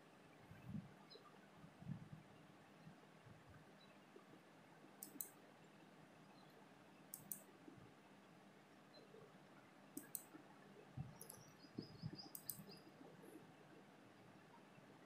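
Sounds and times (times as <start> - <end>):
computer mouse clicks: 5.0 - 5.4, 7.1 - 7.5, 10.0 - 10.4, 11.2 - 11.5, 12.1 - 12.8.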